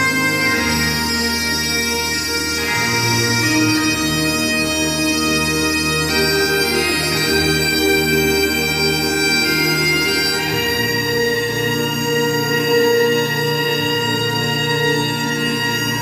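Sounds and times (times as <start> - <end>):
slow melody of held notes: 0.0 - 16.0
steady low drone: 0.0 - 16.0.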